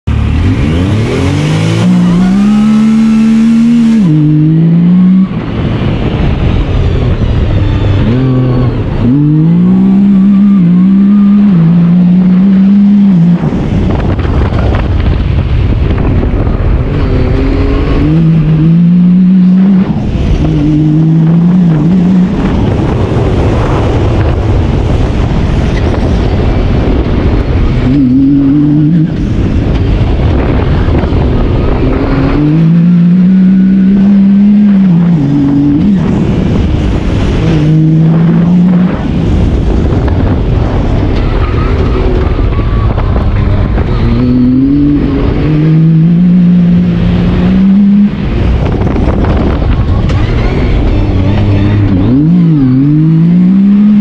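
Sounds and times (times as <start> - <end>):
engine accelerating hard: 0.0 - 54.0
rough noisy rush: 0.0 - 54.0.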